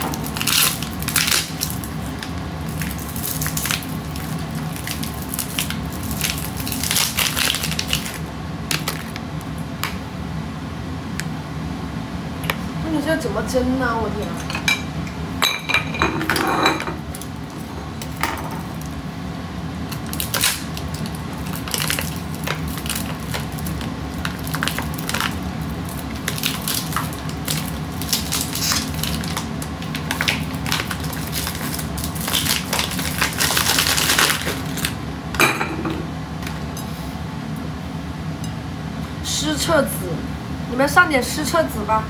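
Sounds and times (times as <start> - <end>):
steady low hum: 0.0 - 42.0
plastic bag crinkling: 20.0 - 35.0.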